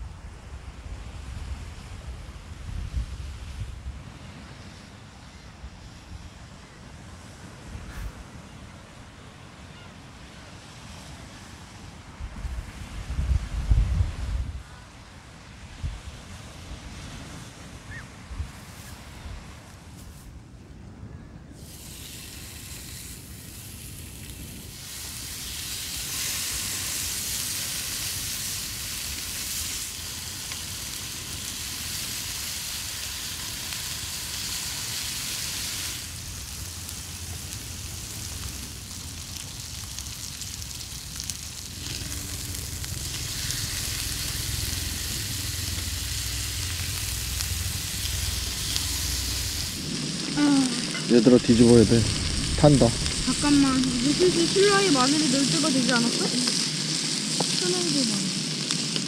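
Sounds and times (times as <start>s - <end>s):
pork sizzling on a griddle: 21.6s - 59.0s.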